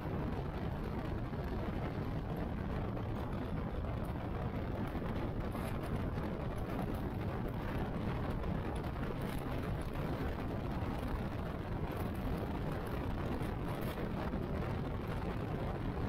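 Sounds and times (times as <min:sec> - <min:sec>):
wind rush: 0:00.0 - 0:16.0.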